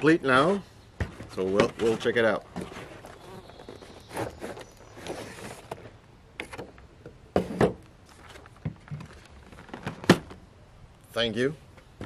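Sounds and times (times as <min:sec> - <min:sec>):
packaging scraping rustles: 0:01.8 - 0:06.6.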